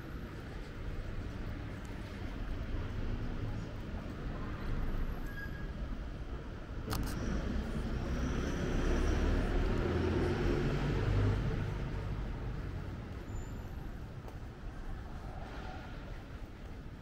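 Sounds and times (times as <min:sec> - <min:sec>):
vehicle driving past: 0:07.2 - 0:13.0.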